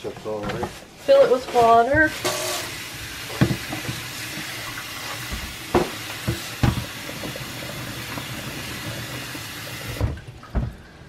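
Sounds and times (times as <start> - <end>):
faucet water splashing into tub: 2.1 - 10.2.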